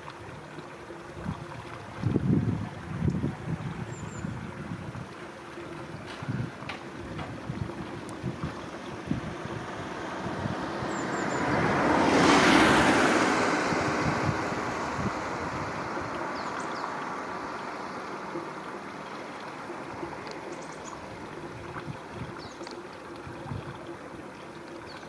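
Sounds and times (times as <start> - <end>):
river water rushing: 0.0 - 25.0
wind on microphone: 1.1 - 16.9, 21.0 - 22.6, 23.2 - 23.9.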